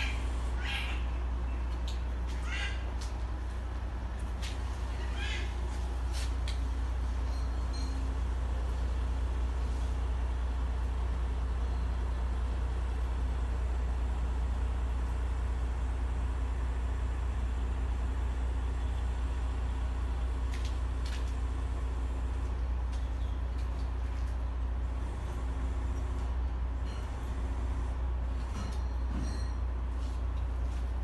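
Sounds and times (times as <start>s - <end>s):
diesel engine droning: 0.0s - 31.0s.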